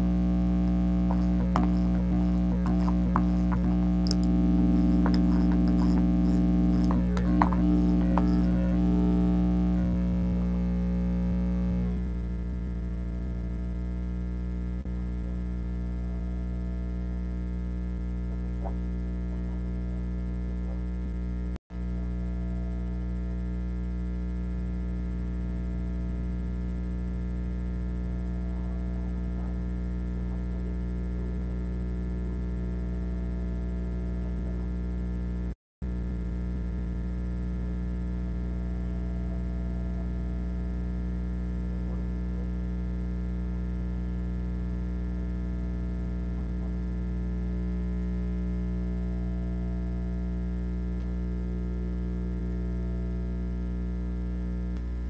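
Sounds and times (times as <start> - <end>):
loud electrical hum: 0.0 - 55.0.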